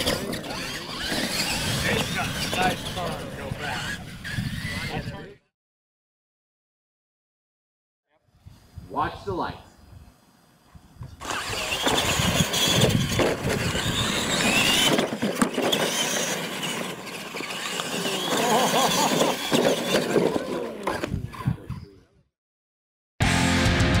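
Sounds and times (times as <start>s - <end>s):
electric motors whining: 0.0s - 5.4s, 10.2s - 22.0s
tires scrabbling on dirt: 0.0s - 5.4s, 11.2s - 21.9s.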